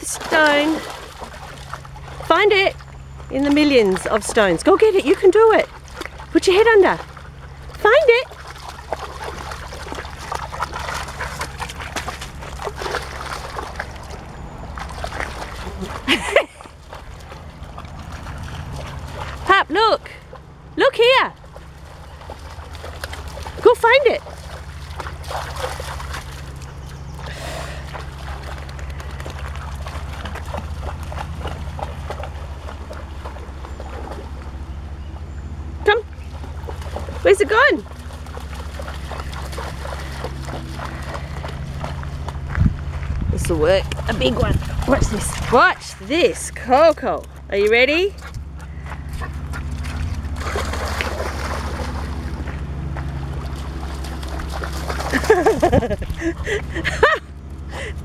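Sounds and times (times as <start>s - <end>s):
dog splashing in water: 0.0s - 19.6s, 21.4s - 34.6s, 36.2s - 42.5s, 43.6s - 57.1s
steady low rumble: 0.0s - 58.0s
wind rumble on microphone: 38.8s - 46.1s, 47.4s - 58.0s.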